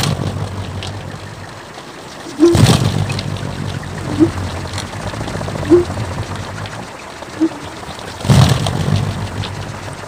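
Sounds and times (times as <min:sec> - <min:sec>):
wind propeller humming: 0:00.0 - 0:10.0
burst of noise: 0:02.3 - 0:03.2.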